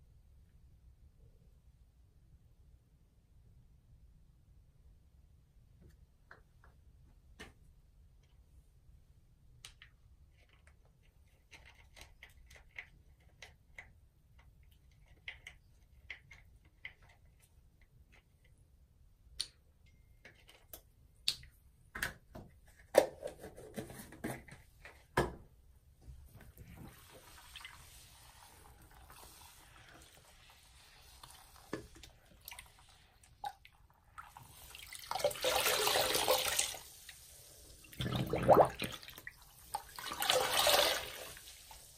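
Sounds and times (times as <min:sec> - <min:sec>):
water dripping and splashing: 0:26.6 - 0:41.9
water gushing from squeezed sponge: 0:26.6 - 0:41.9.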